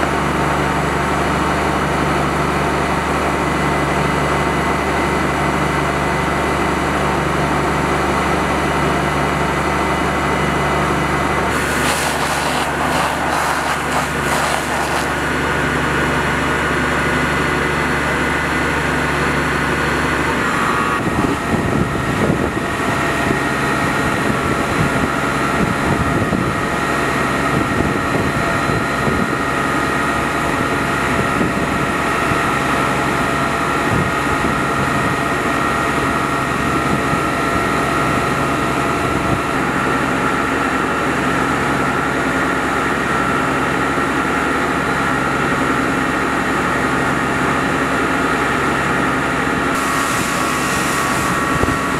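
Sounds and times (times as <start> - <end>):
fire engine running: 0.0 - 51.9
hissing: 11.5 - 15.4.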